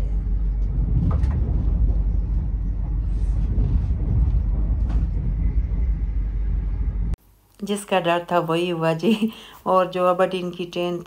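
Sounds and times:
train interior rumble: 0:00.0 - 0:07.2.

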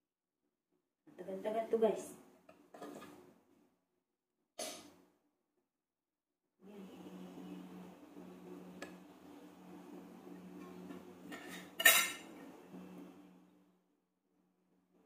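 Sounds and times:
metal utensil clinking on plate: 0:11.4 - 0:12.2.

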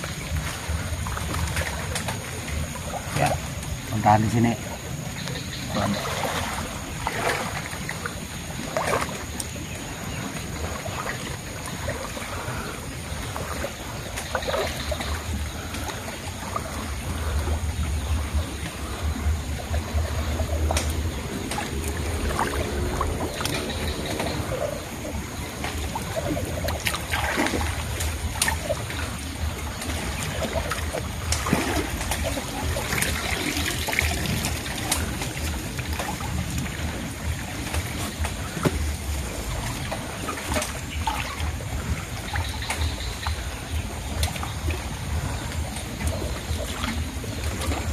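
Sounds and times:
pond water sloshing and trickling: 0:00.0 - 0:47.9
small splashes: 0:00.0 - 0:47.9.

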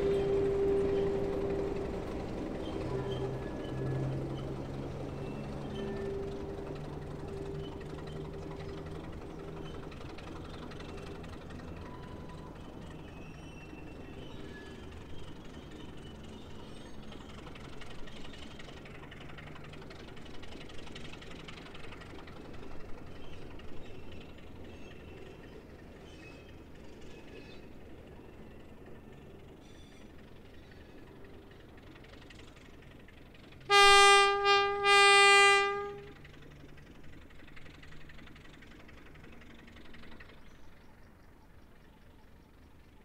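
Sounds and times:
diesel locomotive engine hum: 0:00.0 - 0:43.0.

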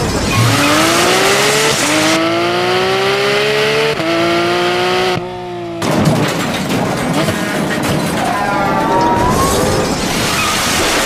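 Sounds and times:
race car engine accelerating: 0:00.0 - 0:06.2.

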